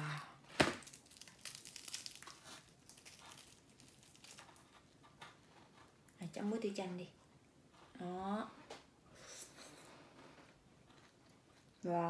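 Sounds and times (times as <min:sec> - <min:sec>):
fried chicken skin crackling: 0:00.7 - 0:05.5.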